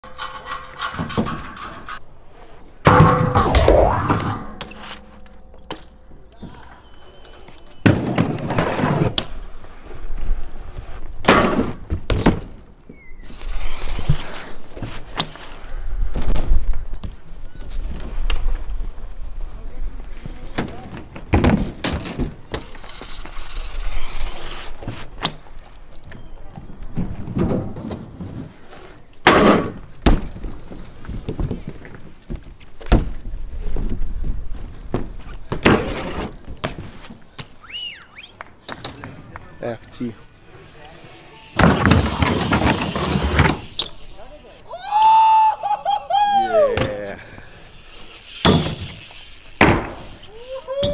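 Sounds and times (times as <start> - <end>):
bike grinding on metal rail: 0.0 - 2.1, 2.8 - 6.2, 13.2 - 15.6, 20.4 - 25.6, 40.3 - 44.6, 47.4 - 50.9
bike wheels thudding on ramps: 2.8 - 5.9, 7.8 - 9.4, 10.8 - 15.4, 20.2 - 25.8, 26.6 - 37.6, 40.5 - 44.5, 46.6 - 50.9
bike knocks: 20.5 - 22.7, 29.2 - 37.5, 41.6 - 44.0, 48.3 - 50.9
rolling tyre noise: 29.9 - 44.5.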